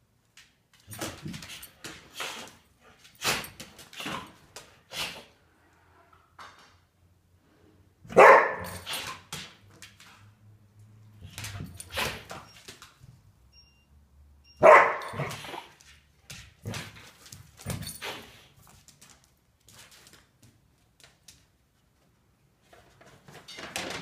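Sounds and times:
dog barking: 8.1 - 8.9, 14.6 - 15.4.

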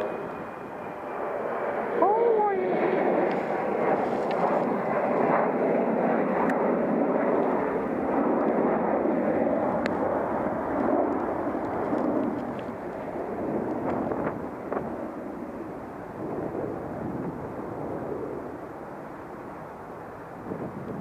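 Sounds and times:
airplane engine passing overhead: 0.0 - 21.0.

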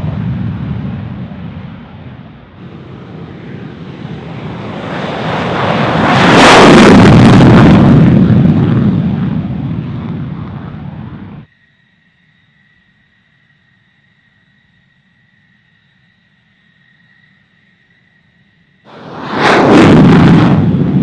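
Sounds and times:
jet engine roaring: 0.0 - 11.5, 18.9 - 21.0.

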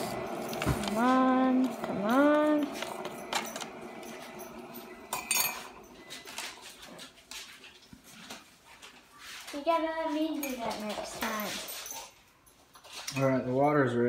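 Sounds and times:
short rising whine: 0.0 - 6.8
dishes and utensils clinking: 2.7 - 8.9, 10.3 - 13.8.

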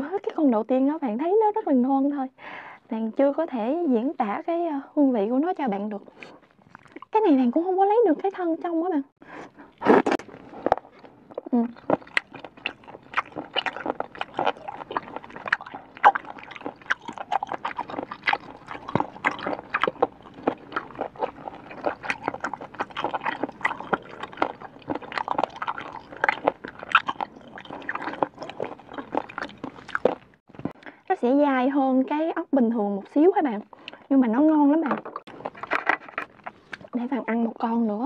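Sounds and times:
chewing with wet crunches: 6.1 - 7.1, 9.5 - 30.8, 34.8 - 37.0.

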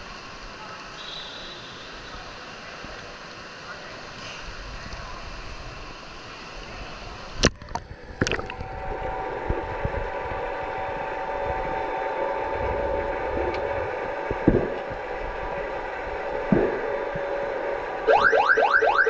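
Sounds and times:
water splashes: 0.8 - 9.1
muffled underwater hum: 6.6 - 19.0.

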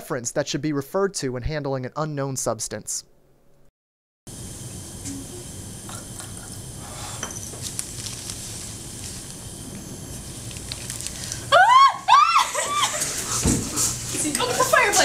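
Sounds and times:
burner flame hissing: 4.3 - 15.0
person yelping: 11.5 - 13.0.

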